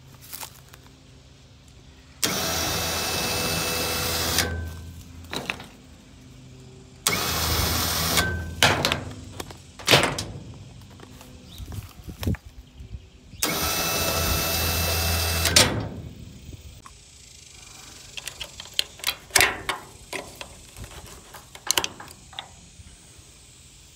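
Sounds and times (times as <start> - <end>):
winch electric motor running: 2.2 - 4.8, 7.0 - 8.6, 13.4 - 16.2
sharp clicks and knocks: 8.1 - 11.3, 18.2 - 22.6.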